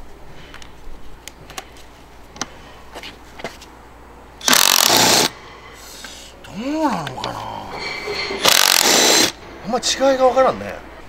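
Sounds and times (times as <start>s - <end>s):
impact wrench hammering: 4.4s - 5.3s, 8.2s - 9.4s.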